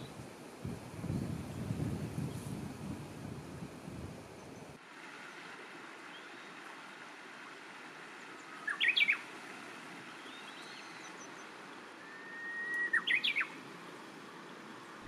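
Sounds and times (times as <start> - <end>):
bush warbler singing: 8.2 - 9.3, 10.0 - 13.6.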